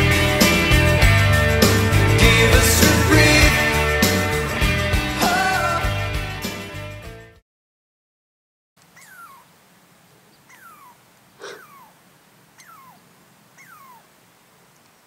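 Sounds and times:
squirrel scolding calls: 0:08.8 - 0:15.0.

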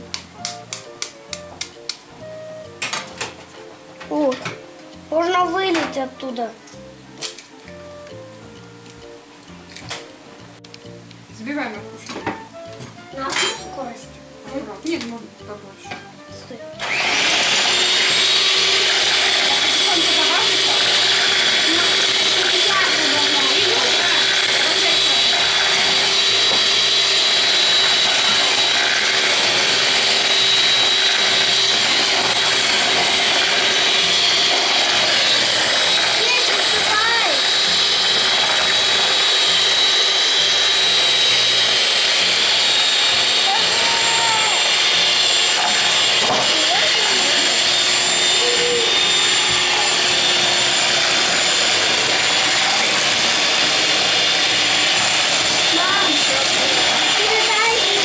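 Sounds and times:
electric hand mixer whipping: 0:16.7 - 0:58.0.

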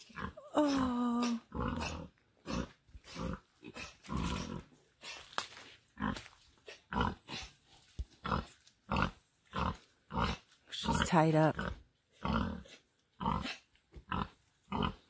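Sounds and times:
sow grunting: 0:00.0 - 0:05.3, 0:08.2 - 0:15.0.

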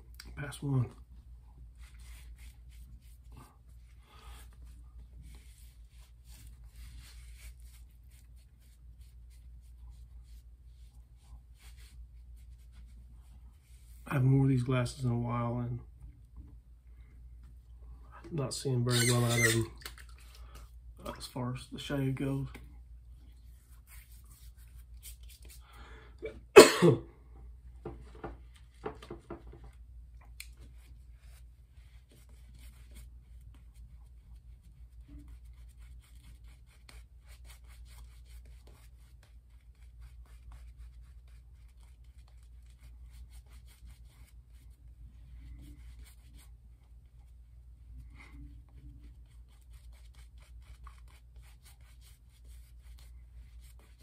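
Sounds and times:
shaving brush rubbing lather: 0:18.9 - 0:19.7
man sneezing: 0:26.2 - 0:27.1.

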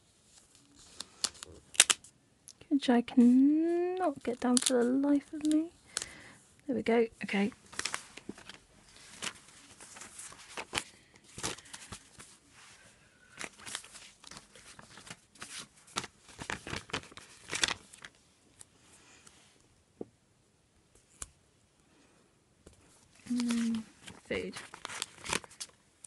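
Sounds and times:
paper sticker sheets crinkling: 0:00.3 - 0:02.1, 0:03.2 - 0:06.2, 0:07.2 - 0:12.4, 0:13.3 - 0:18.7, 0:23.2 - 0:25.8.

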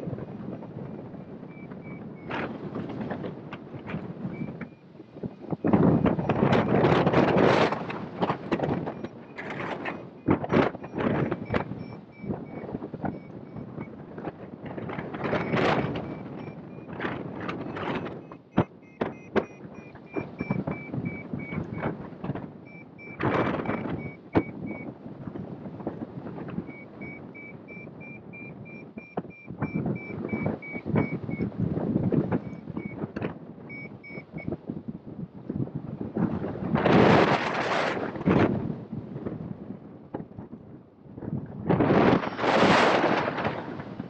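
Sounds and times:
wind buffeting microphone: 0:00.0 - 0:44.0
variometer high beeps: 0:01.2 - 0:02.4, 0:03.9 - 0:14.0, 0:15.2 - 0:22.0, 0:22.6 - 0:24.9, 0:26.5 - 0:34.5.

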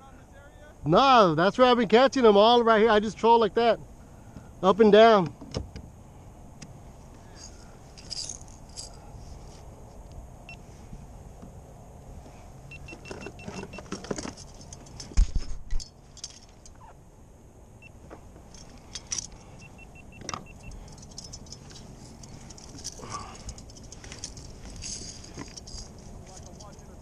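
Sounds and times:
fishing tackle clinking: 0:20.4 - 0:27.0.

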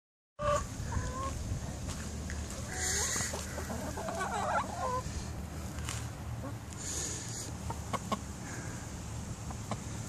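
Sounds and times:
hens clucking: 0:00.4 - 0:01.4, 0:02.5 - 0:05.3, 0:06.3 - 0:08.4, 0:09.4 - 0:10.0.

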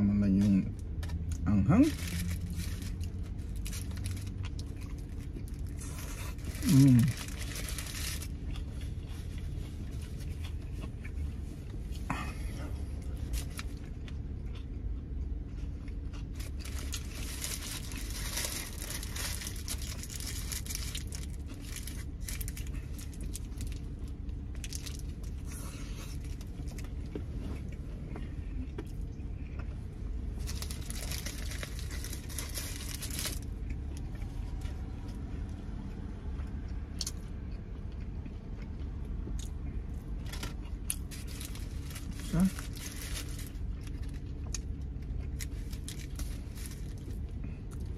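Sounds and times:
low steady hum: 0:00.0 - 0:47.9
paper wrapper crinkling: 0:01.8 - 0:08.4, 0:16.3 - 0:23.8, 0:24.6 - 0:25.4, 0:30.4 - 0:33.5, 0:40.3 - 0:44.3, 0:45.3 - 0:47.2
person chewing food: 0:02.2 - 0:42.9, 0:43.5 - 0:47.9.

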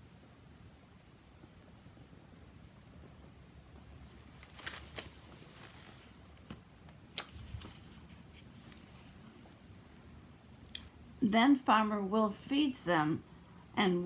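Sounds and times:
book page turning: 0:04.0 - 0:09.2.

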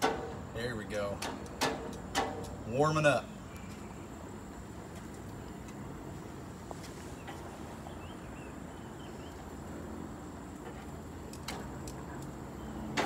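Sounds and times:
low background noise: 0:00.0 - 0:13.0
grill tongs clicking on grate: 0:01.1 - 0:02.6.

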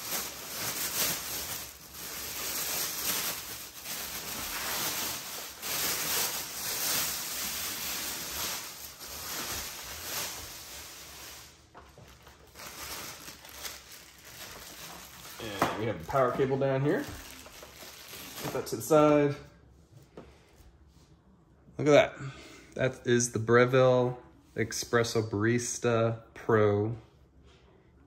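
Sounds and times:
plastic bag crinkling: 0:00.0 - 0:19.3.

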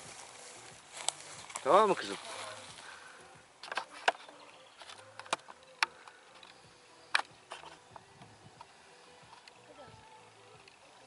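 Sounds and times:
faint outdoor background: 0:00.0 - 0:11.0
sharp clicks and taps: 0:04.8 - 0:08.3.

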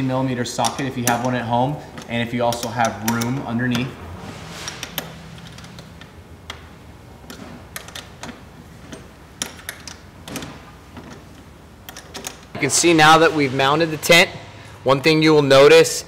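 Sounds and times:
wrench clicking on metal bolts: 0:00.0 - 0:03.9, 0:07.2 - 0:12.6.

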